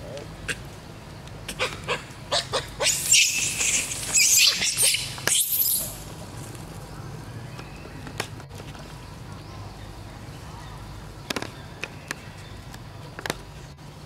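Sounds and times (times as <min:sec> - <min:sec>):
monkey harsh screaming: 0:01.5 - 0:06.0
monkey squeaks: 0:02.8 - 0:06.0.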